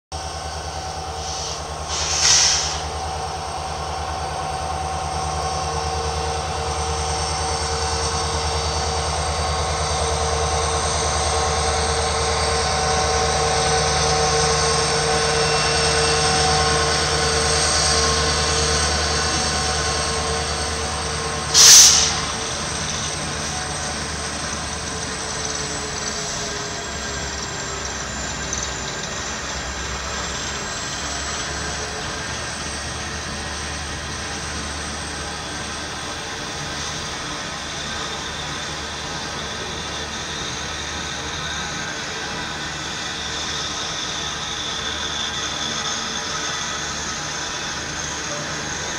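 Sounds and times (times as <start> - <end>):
diesel locomotives rumbling past: 0.1 - 48.9
loud hissing bursts: 1.2 - 3.0, 21.5 - 22.3.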